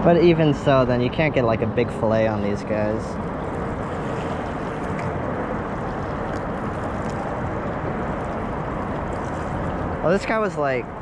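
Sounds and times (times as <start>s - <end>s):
wind and water rushing: 0.0s - 11.0s.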